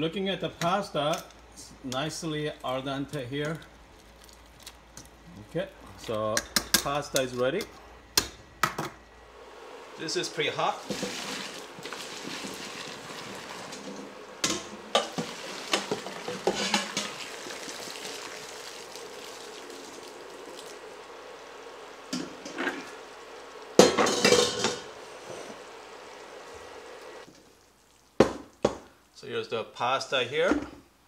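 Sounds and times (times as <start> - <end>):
metal pots clattering: 10.8 - 17.4, 23.8 - 24.9
water pouring into a strainer: 16.9 - 20.8.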